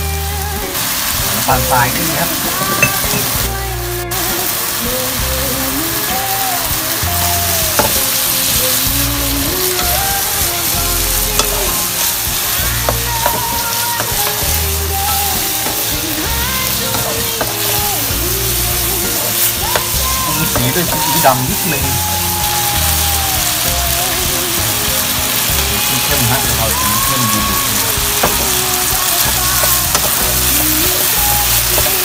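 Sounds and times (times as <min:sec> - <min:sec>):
background music: 0:00.0 - 0:32.0
meat sizzling in a wok: 0:00.0 - 0:32.0.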